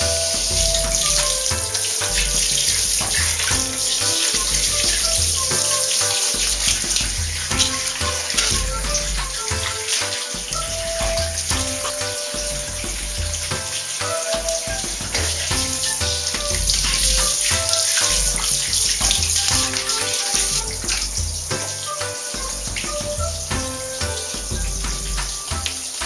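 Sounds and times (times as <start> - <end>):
background music with bass: 0.0 - 26.0
shower water hissing: 0.0 - 26.0.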